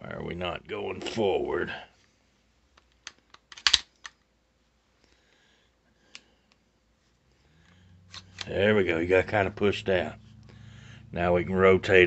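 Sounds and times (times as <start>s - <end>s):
pistol parts clicking: 2.7s - 4.3s, 8.1s - 8.5s.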